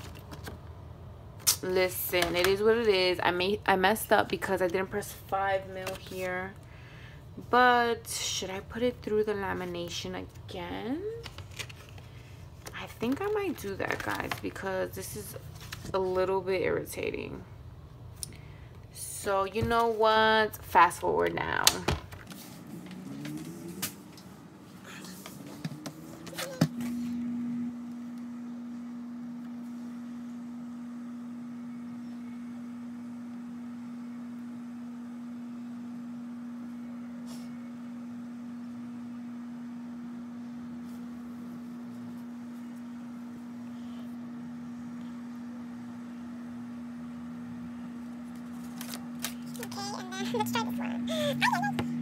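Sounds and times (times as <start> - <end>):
laminator humming: 0.0 - 52.0.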